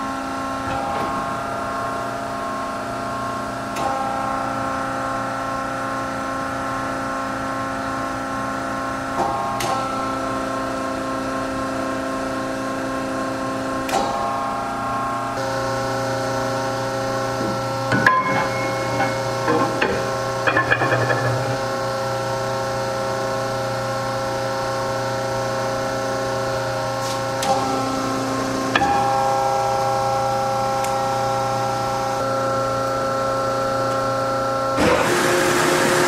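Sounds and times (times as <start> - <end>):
band saw humming: 15.3 - 32.9
metal bar knocking and scraping: 17.4 - 21.9.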